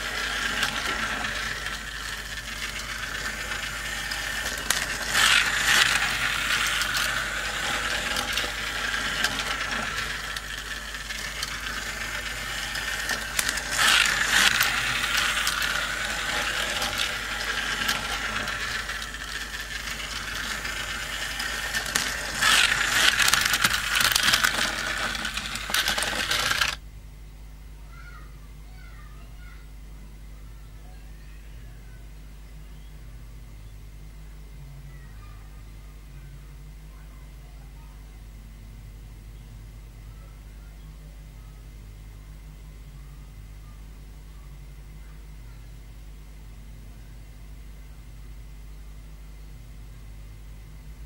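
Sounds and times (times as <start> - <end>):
rattling gears: 0.0 - 26.8
toy cars clattering on track: 0.0 - 26.8.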